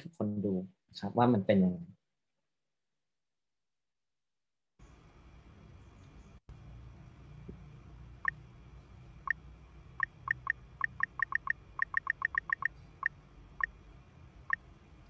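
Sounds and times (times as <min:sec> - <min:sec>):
touchscreen keypad beeps: 0:10.0 - 0:12.7.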